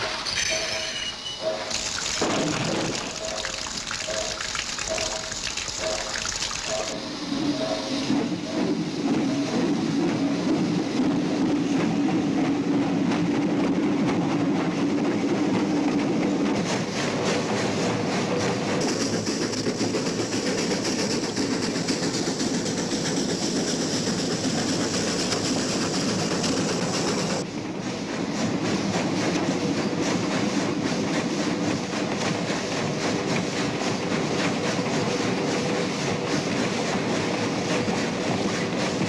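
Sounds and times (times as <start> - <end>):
train wheels clicking over rail joints: 0.0 - 39.0
steam hiss: 1.4 - 11.6.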